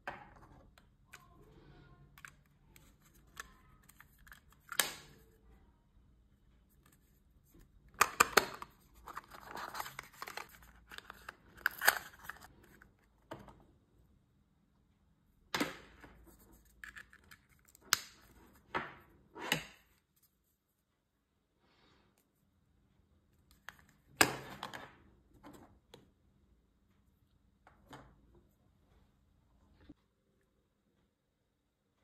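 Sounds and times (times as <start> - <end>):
packaging and cable rustling: 8.0 - 12.9.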